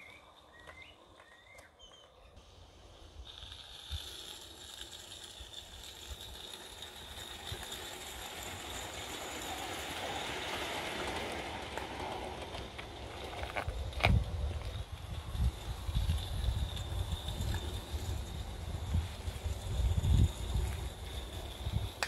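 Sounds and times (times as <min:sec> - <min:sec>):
model train wheels rattling on rails: 0:00.0 - 0:22.0.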